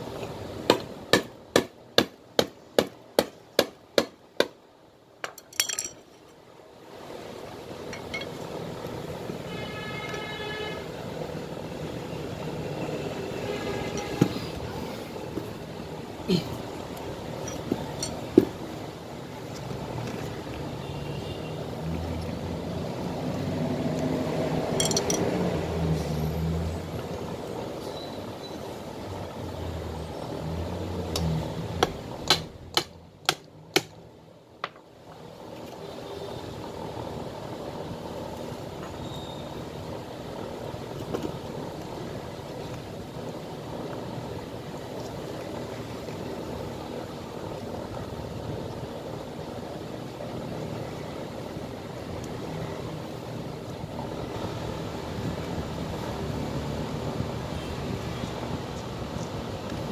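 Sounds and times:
boot handling noise: 17.5s - 18.6s.

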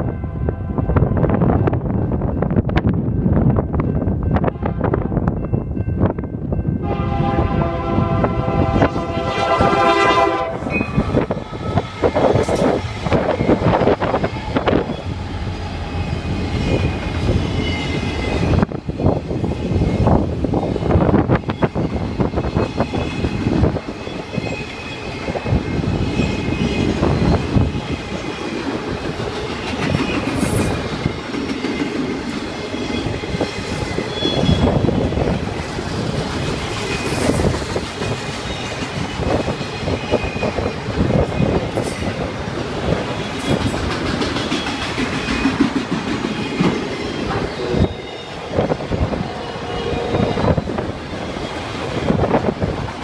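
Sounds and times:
steel wheels rumbling on rail: 0.0s - 53.0s
clacks over rail joints: 43.3s - 47.4s.

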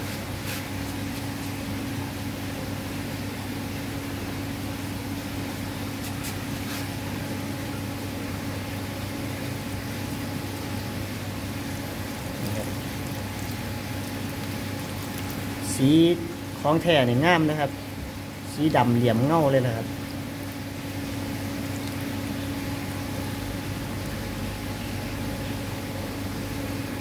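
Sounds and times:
faint water trickling: 6.0s - 26.8s
machine hum: 6.9s - 27.0s.

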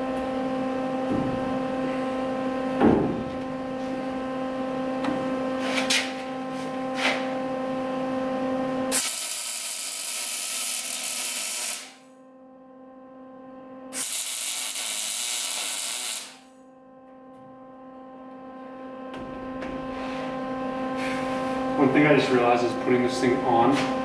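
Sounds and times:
steady electrical hum: 0.0s - 24.0s
welder arc crackling: 8.9s - 12.0s, 14.0s - 16.5s.

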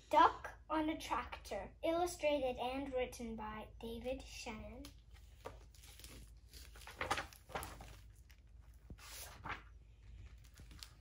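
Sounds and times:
book pages turning: 4.8s - 11.0s.

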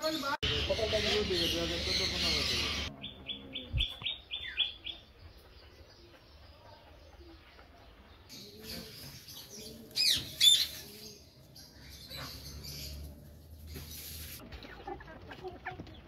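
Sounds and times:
loud sharp bird calls: 0.0s - 5.0s.

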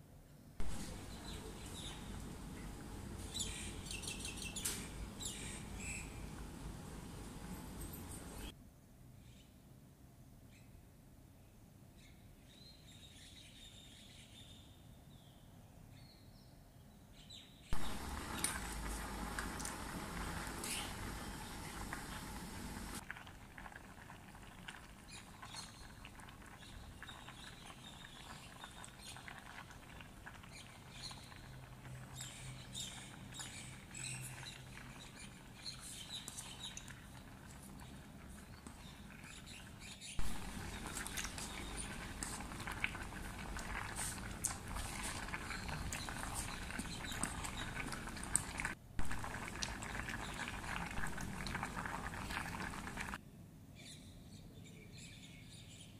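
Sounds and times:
pot bubbling with pops: 0.6s - 6.5s, 17.8s - 53.2s.

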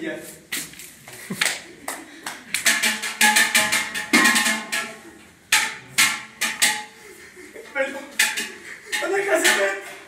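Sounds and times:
hand claps: 1.1s - 3.2s.

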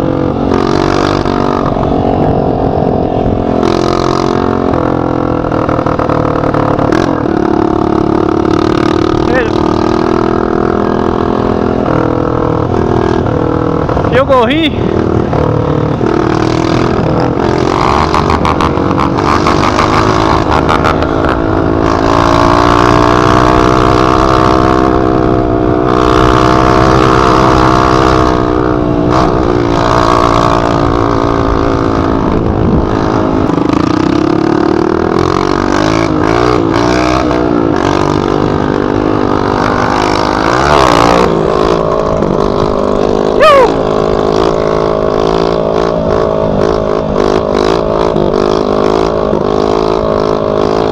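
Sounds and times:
dirt bike engine revving: 0.0s - 50.9s
wind buffeting helmet camera: 26.5s - 36.3s.

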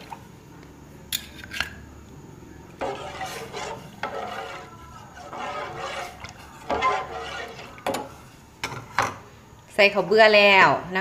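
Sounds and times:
ladle scraping metal pot: 2.7s - 9.1s.

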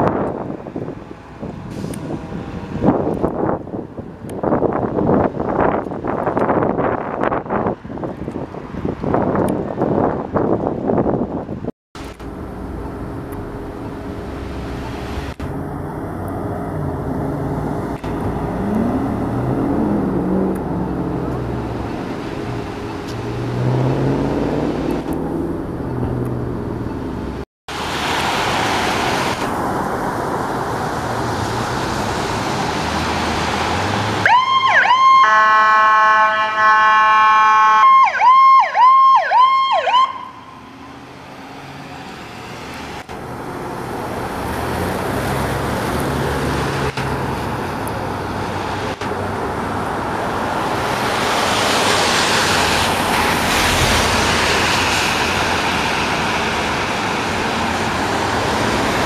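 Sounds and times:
road noise: 0.0s - 59.0s
heavy vehicle engine running: 12.0s - 23.5s, 24.1s - 27.9s
electronic siren: 34.2s - 40.7s.

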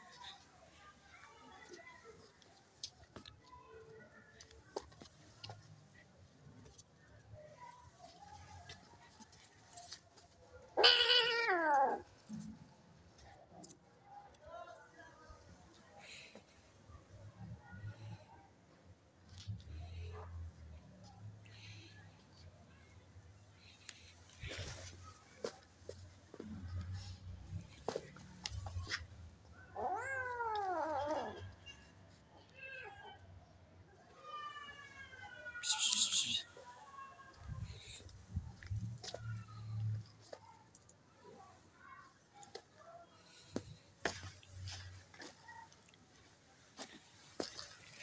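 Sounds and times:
cat yowling: 10.8s - 12.0s, 29.8s - 31.4s.

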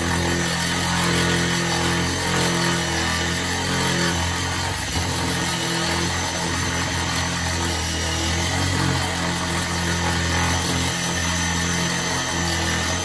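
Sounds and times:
angle grinder grinding stone: 0.0s - 13.0s.

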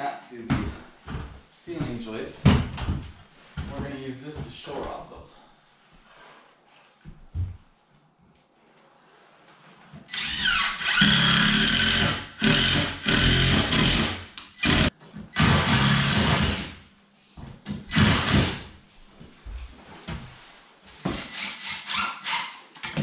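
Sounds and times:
power driver driving screws: 10.1s - 16.7s.

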